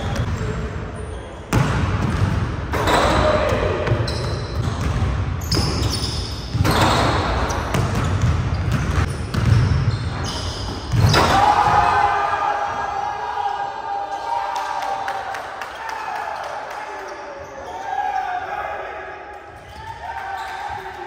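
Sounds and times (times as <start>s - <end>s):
basketball bouncing on wooden floor: 7.7s - 9.8s.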